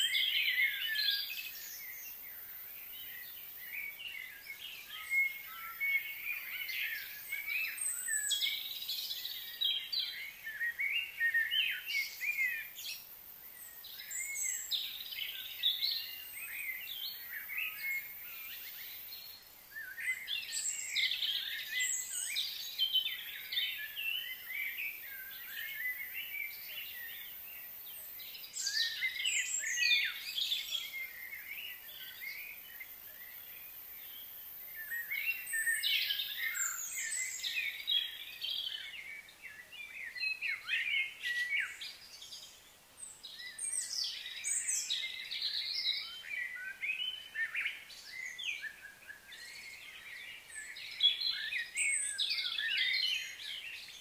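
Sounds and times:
birds chirping and singing: 0:00.0 - 0:54.0.

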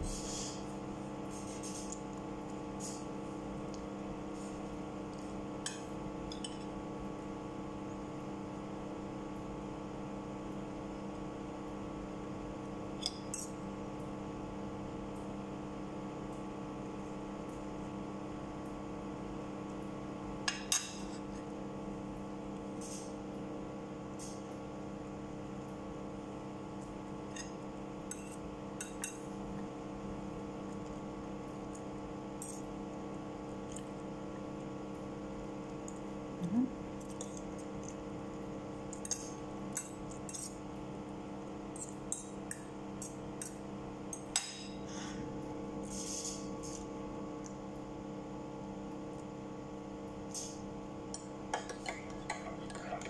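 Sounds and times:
cutlery clinking on a plate: 0:51.2 - 0:53.0.

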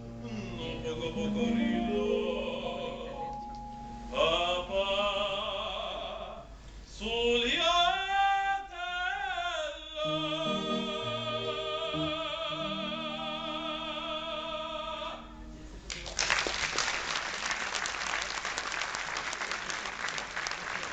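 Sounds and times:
male operatic singing: 0:00.0 - 0:03.4, 0:04.1 - 0:15.4.

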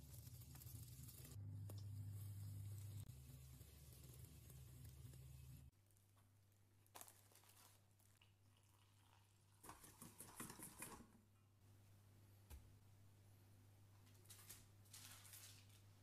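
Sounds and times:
low steady hum: 0:00.2 - 0:06.8.

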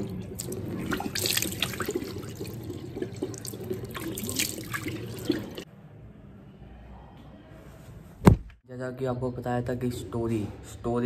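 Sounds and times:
tap water running into sink: 0:00.0 - 0:05.6
hands splashing water: 0:00.4 - 0:05.6.

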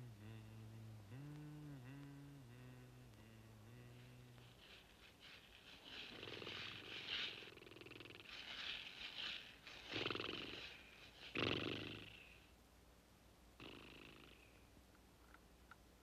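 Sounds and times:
rasping animal-like voice: 0:00.0 - 0:08.9, 0:09.7 - 0:12.4.

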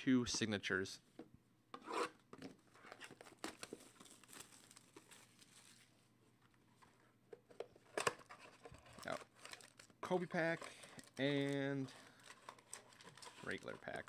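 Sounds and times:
plastic wrap crinkling and tearing: 0:02.9 - 0:05.9, 0:08.3 - 0:14.0.

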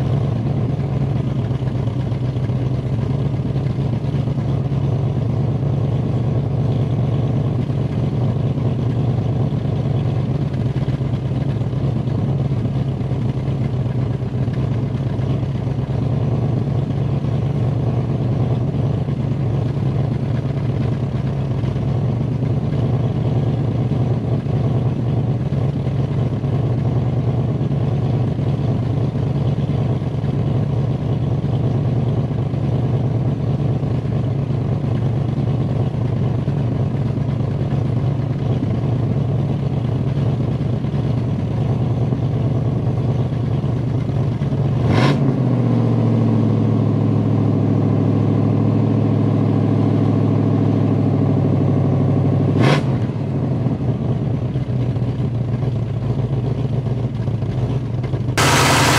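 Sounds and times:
car engine running: 0:00.0 - 0:38.8, 0:58.1 - 0:58.9.

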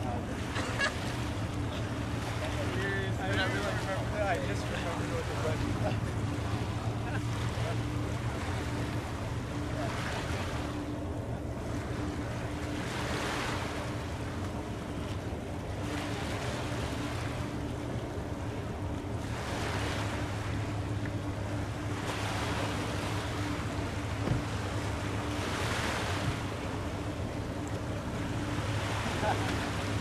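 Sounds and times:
steady low hum: 0:00.0 - 0:30.0
waves washing in: 0:00.0 - 0:30.0.

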